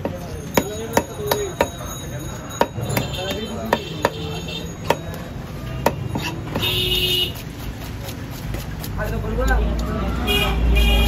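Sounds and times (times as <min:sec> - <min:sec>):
knife striking wooden chopping block: 0:02.6 - 0:04.2, 0:04.8 - 0:05.2.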